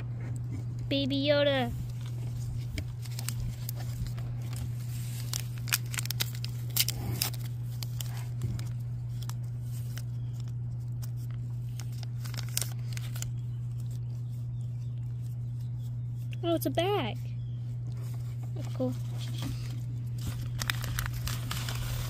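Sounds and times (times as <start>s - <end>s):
steady low hum: 0.0s - 22.0s
plastic packet tearing and crinkling: 1.8s - 14.4s, 19.7s - 22.0s.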